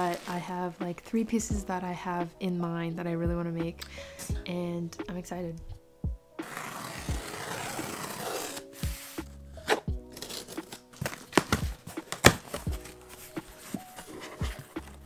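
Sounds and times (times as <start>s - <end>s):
background music: 0.0s - 15.0s
scissors slitting packing tape: 6.4s - 12.9s
cardboard clicks and scrapes: 6.4s - 15.0s.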